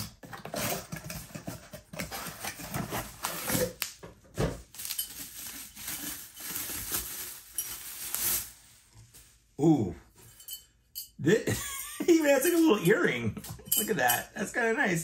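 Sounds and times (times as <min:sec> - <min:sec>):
bubble wrap rustling: 0:04.6 - 0:09.6.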